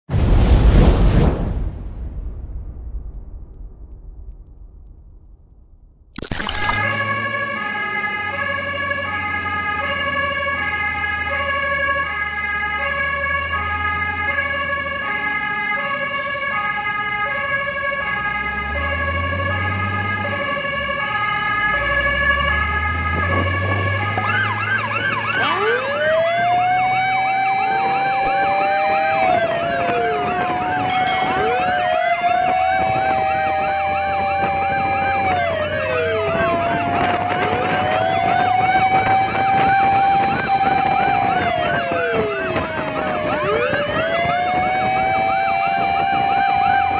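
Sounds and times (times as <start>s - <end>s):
wailing siren: 6.2s - 46.9s
warbling siren yelp: 6.2s - 46.9s
fire truck two-tone siren: 6.4s - 46.9s
truck engine revving: 18.1s - 41.8s.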